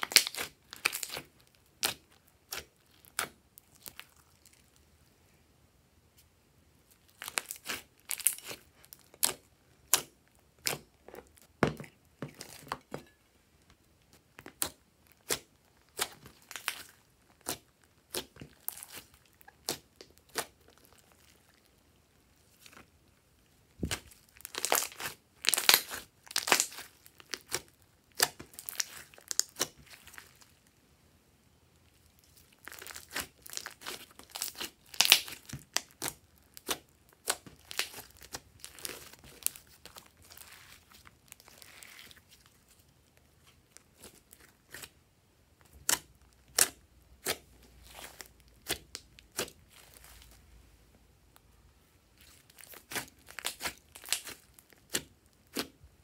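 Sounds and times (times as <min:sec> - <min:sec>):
slime clicking and popping: 0:32.7 - 0:39.6.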